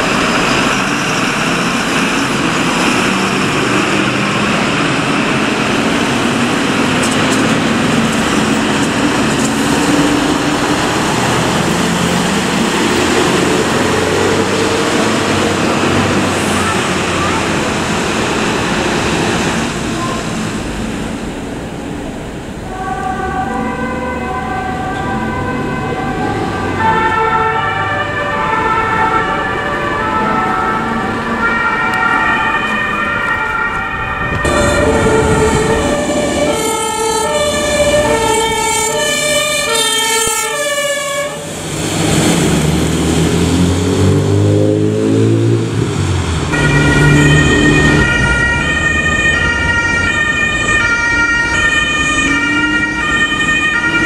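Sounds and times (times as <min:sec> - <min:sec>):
vehicle engine rising in pitch: 0:00.0 - 0:21.4, 0:22.7 - 0:54.0
traffic noise: 0:00.0 - 0:54.0
two-tone emergency horns: 0:22.7 - 0:41.5, 0:46.5 - 0:54.0.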